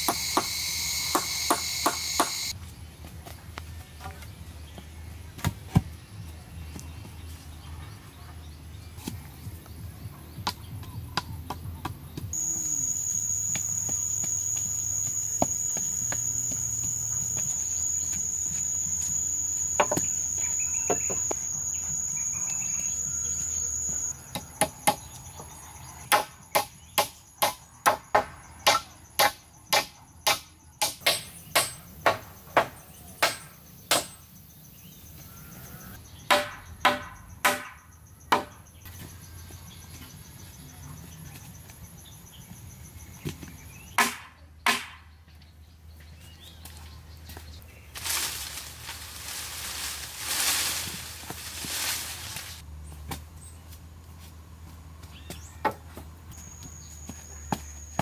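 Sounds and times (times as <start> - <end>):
high insect trill: 0.0 - 2.6, 12.3 - 26.6, 28.5 - 43.2
sharp tool strikes: 26.1 - 34.2, 36.3 - 38.6, 44.0 - 45.0.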